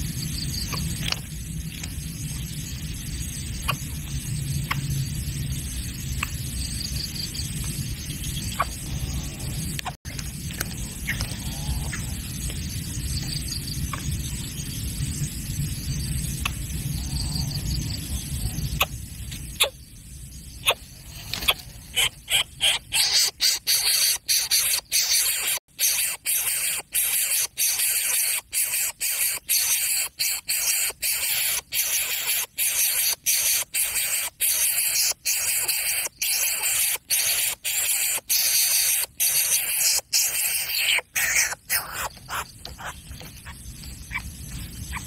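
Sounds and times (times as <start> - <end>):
bird nestling hissing calls: 20.6 - 43.0.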